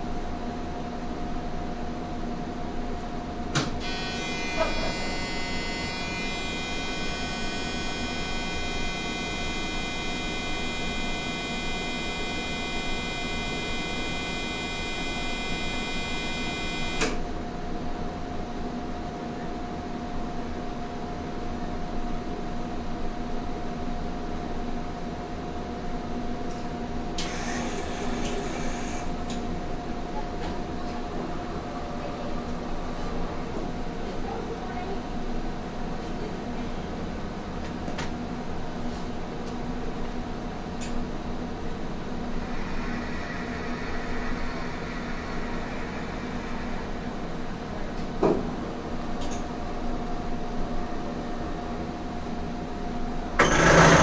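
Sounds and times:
machine humming steadily: 0.0s - 54.0s
high-pitched whine: 3.8s - 17.2s, 42.0s - 49.4s.

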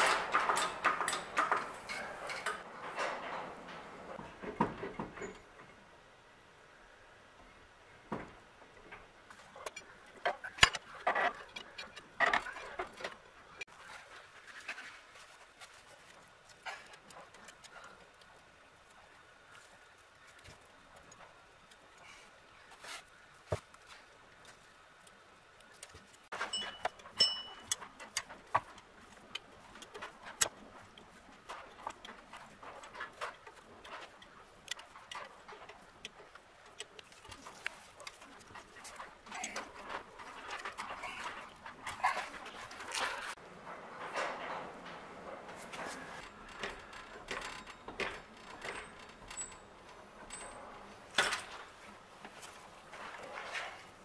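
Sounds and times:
hand tools clicking on metal: 25.8s - 43.4s
short metallic ring: 26.5s - 27.6s.

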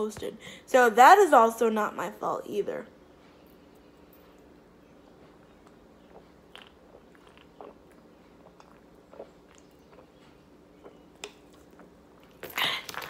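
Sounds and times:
low steady hum: 0.0s - 13.0s
sipping and swallowing from a can: 5.6s - 13.0s.

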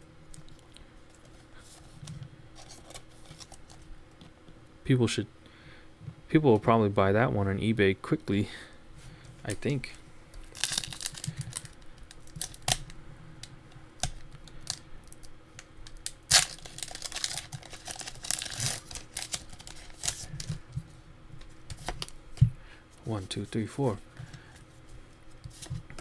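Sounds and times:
foil wrapper crinkling and tearing: 10.5s - 12.9s, 14.0s - 20.6s.

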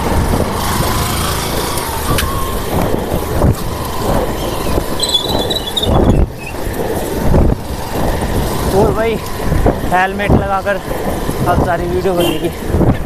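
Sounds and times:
motorbike engine running: 0.0s - 11.3s
road rumble: 0.0s - 13.0s
wind buffeting microphone: 0.0s - 13.0s.

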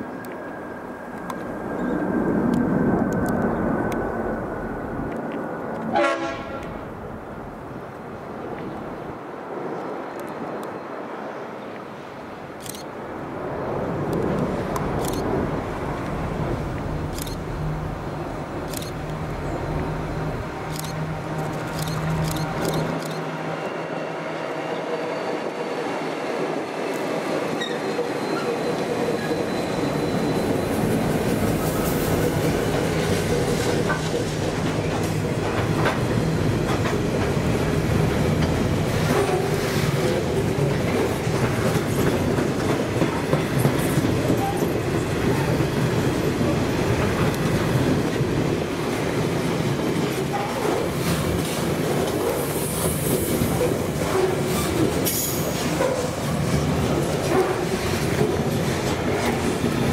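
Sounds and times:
diesel locomotive engine drone: 0.0s - 9.5s, 12.1s - 59.9s
train wheels clicking over rail joints: 20.5s - 23.2s, 31.2s - 48.5s
wheel squeal: 27.6s - 31.0s.

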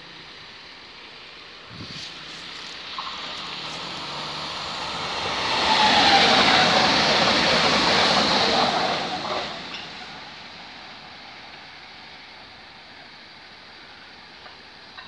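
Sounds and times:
train wheels rushing on rails: 1.6s - 13.1s.

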